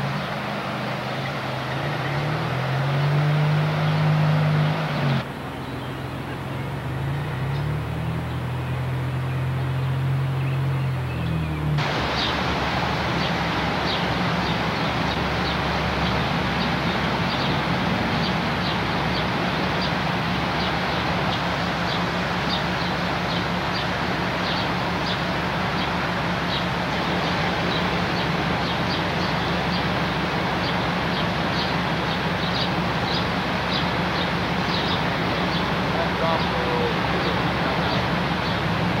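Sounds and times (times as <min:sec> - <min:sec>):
bird chirping: 0:00.0 - 0:12.4, 0:13.1 - 0:29.9, 0:30.6 - 0:38.7
floodwater rushing around posts: 0:00.0 - 0:39.0.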